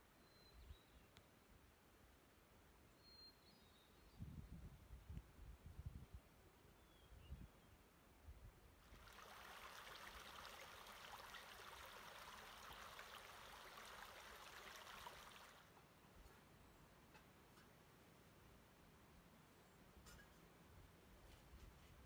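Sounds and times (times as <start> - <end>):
faint running water: 8.8 - 15.7.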